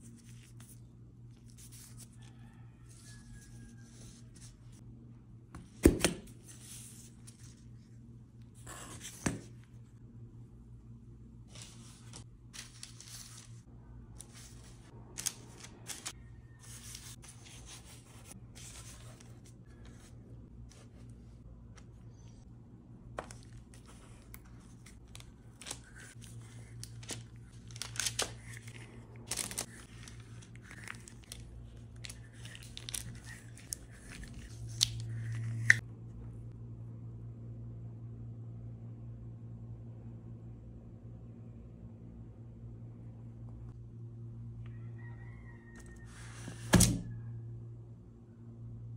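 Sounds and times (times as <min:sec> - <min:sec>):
low steady hum: 0:00.0 - 0:48.9
plastic gloves and paper crinkling: 0:11.4 - 0:19.9, 0:23.2 - 0:35.8.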